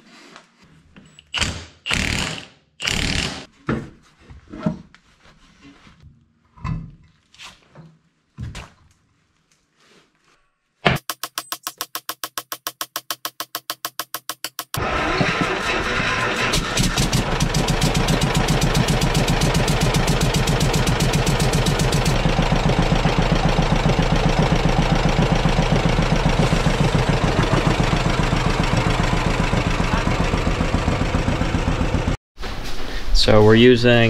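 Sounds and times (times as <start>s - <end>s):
tractor engine pulsing exhaust: 11.2s - 32.2s.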